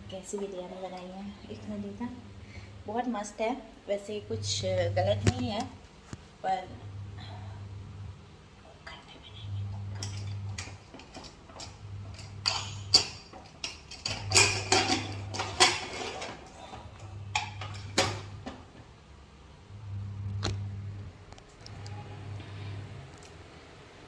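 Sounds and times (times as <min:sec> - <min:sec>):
low hum: 0:06.5 - 0:13.1, 0:16.4 - 0:24.0.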